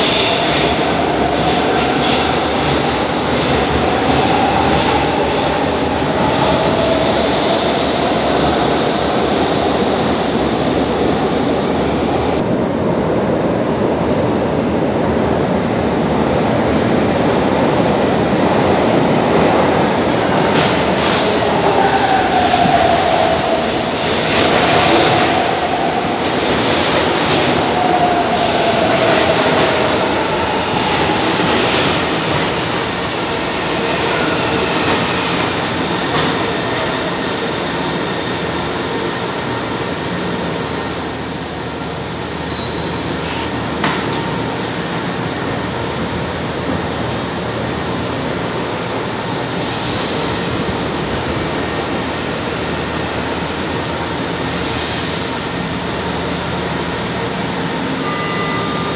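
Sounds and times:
train wheels rumbling on rail: 0:00.0 - 0:58.9
train wheel squeals: 0:38.2 - 0:43.5.

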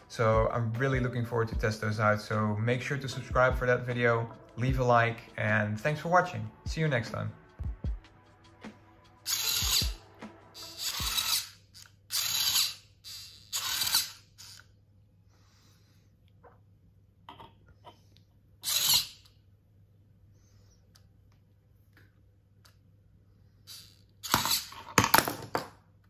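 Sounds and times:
servo motor whirring: 0:09.3 - 0:10.0, 0:10.6 - 0:14.7, 0:18.6 - 0:19.2.

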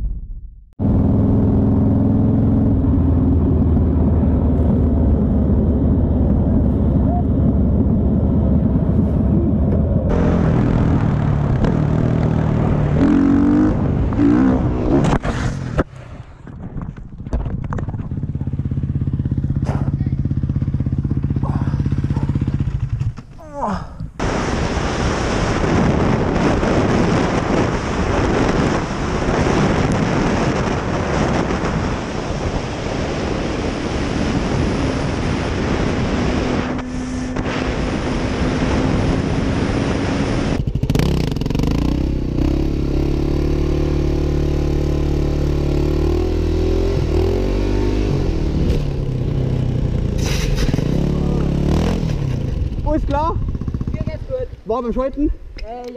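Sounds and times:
wind rush over microphone: 0:00.8 - 0:42.5
dirt bike engine revving: 0:10.1 - 0:15.8, 0:34.1 - 0:54.3.

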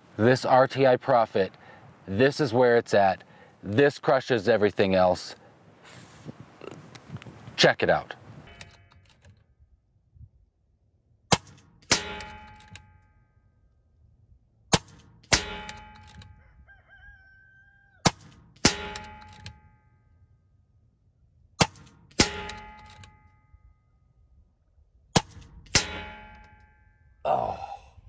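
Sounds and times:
pellet hitting metal target: 0:11.3 - 0:12.8, 0:14.7 - 0:16.0, 0:25.2 - 0:26.6
air rifle shots: 0:14.7 - 0:16.2.

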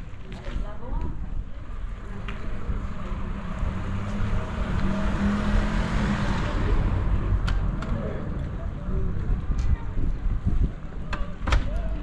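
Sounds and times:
car passing by: 0:02.2 - 0:08.7.

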